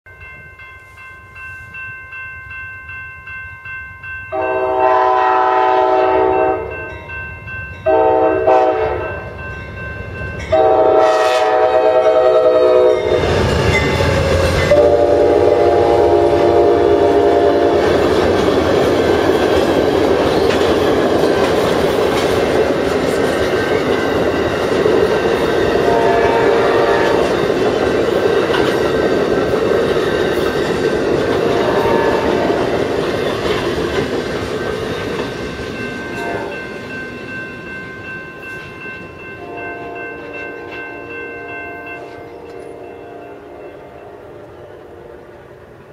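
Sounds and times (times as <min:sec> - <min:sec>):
crossing bell ringing: 0:00.1 - 0:45.9
train horn blasts: 0:04.3 - 0:06.9, 0:07.9 - 0:09.2, 0:10.5 - 0:13.4, 0:14.0 - 0:18.0, 0:25.7 - 0:27.4, 0:31.4 - 0:32.7, 0:36.1 - 0:36.6
train wheels clickety-clack on rails: 0:07.8 - 0:42.8.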